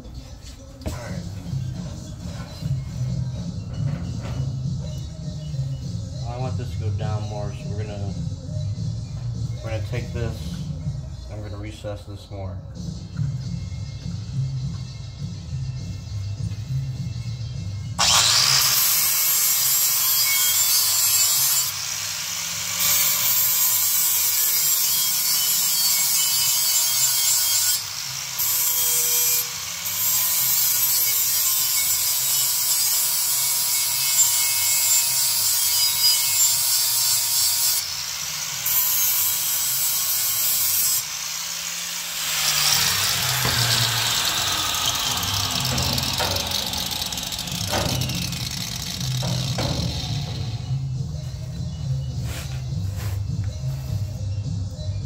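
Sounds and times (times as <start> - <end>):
power tool grinding metal: 18.0 - 53.3.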